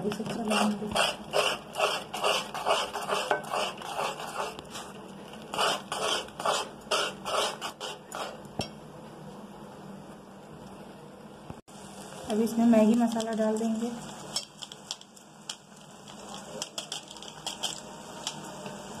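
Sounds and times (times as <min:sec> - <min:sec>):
spatula scraping metal pot: 0:00.3 - 0:08.5.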